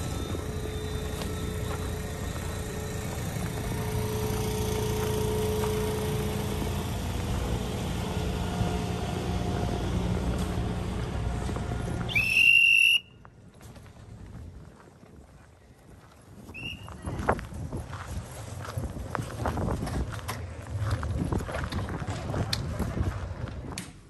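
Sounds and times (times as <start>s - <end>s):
train engine rumbling: 0.0s - 24.0s
high-pitched whistle blast: 12.1s - 13.2s.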